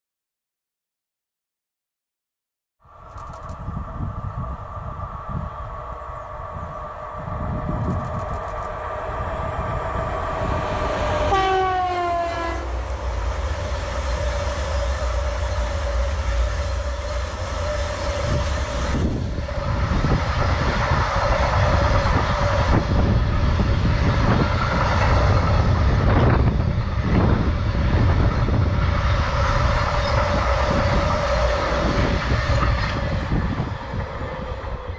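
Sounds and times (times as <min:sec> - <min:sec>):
electric locomotive whine: 0:02.8 - 0:34.9
train wagons rumbling and clattering: 0:03.1 - 0:34.9
train horn: 0:10.0 - 0:13.0.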